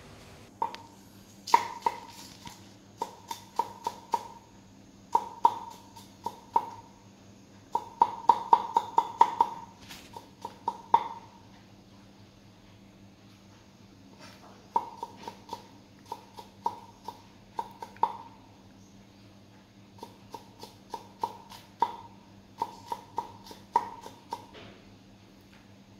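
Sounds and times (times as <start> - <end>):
knife chopping on wooden board: 1.5 - 2.2, 3.0 - 4.4, 5.2 - 6.8, 7.8 - 11.2, 20.0 - 24.6.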